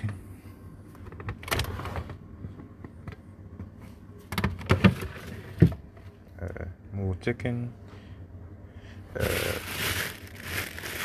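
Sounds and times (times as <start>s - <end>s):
plastic bags rustling and knocking: 9.2s - 11.0s.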